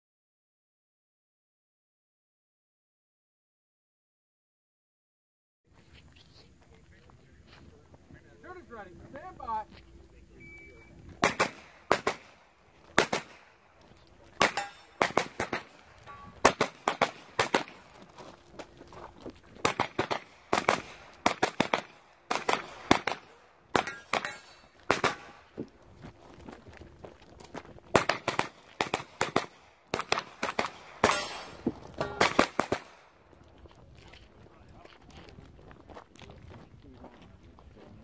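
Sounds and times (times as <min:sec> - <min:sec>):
carbine firing rapid shots: 0:11.2 - 0:13.4, 0:14.4 - 0:15.8, 0:16.4 - 0:17.8, 0:19.6 - 0:25.4, 0:27.9 - 0:33.0.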